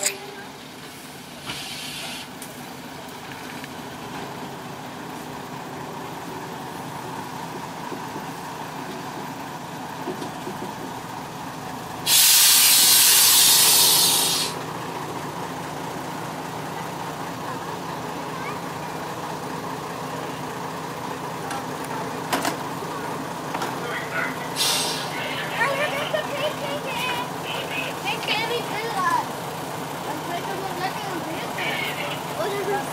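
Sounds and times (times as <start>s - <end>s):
diesel railcar engine running: 0.0s - 32.9s
compressed air hissing: 1.4s - 2.3s, 12.0s - 14.6s, 24.6s - 25.1s.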